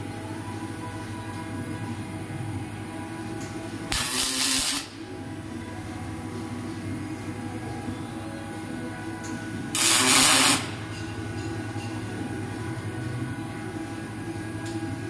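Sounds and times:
steady machine hum: 0.0s - 15.0s
loud hiss: 3.9s - 5.0s, 9.8s - 10.7s.

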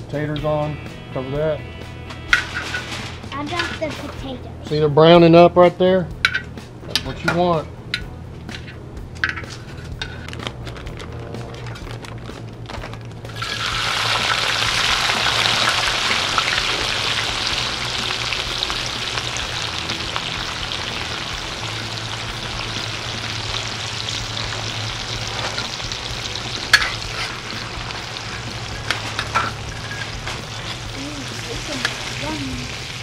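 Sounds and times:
potatoes sizzling in hot grease: 13.3s - 33.0s
spatula clinking on metal: 28.3s - 30.9s.

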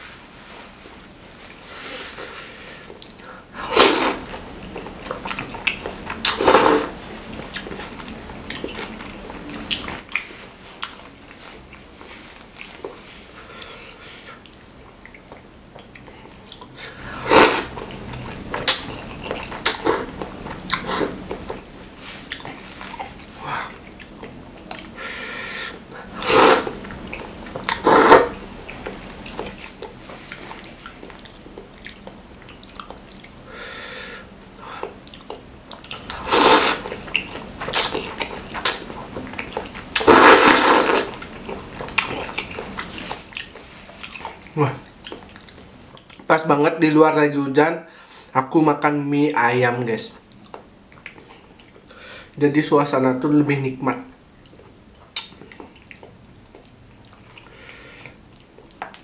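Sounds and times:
chewing and wet mouth sounds: 0.5s - 25.0s, 25.7s - 33.6s, 34.2s - 46.4s, 50.1s - 52.4s, 54.1s - 59.0s
noodle slurping: 3.6s - 7.8s, 16.9s - 24.2s, 25.4s - 32.1s, 35.9s - 44.4s.

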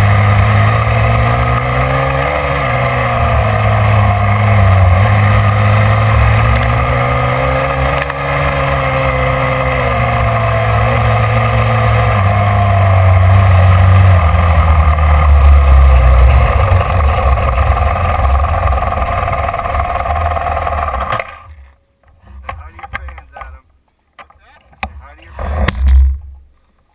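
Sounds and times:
dirt bike engine running hard: 0.0s - 21.5s.

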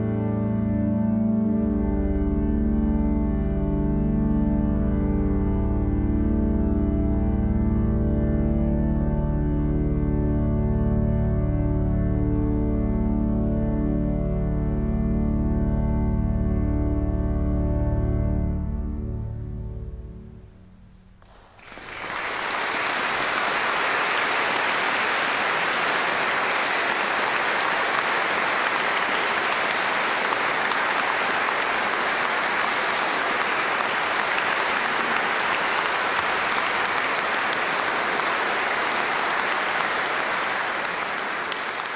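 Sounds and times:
pipe organ chord: 0.0s - 21.1s
audience applauding: 21.2s - 41.9s.

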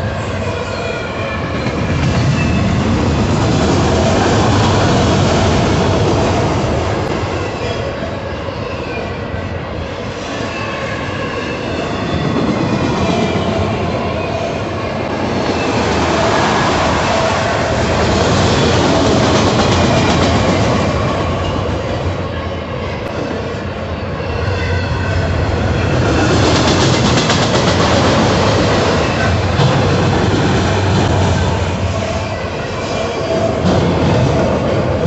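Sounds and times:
freight train wheels rumbling: 0.0s - 35.0s.

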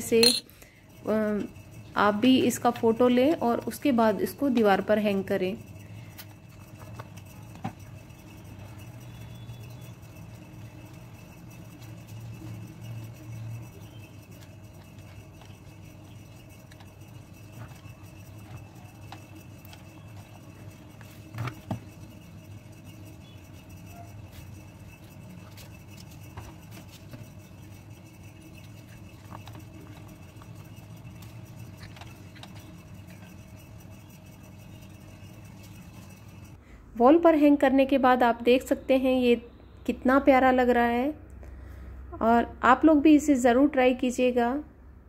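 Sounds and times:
steady low hum: 0.0s - 43.5s
objects tapping and rubbing on stone: 0.1s - 0.5s, 9.8s - 36.5s.

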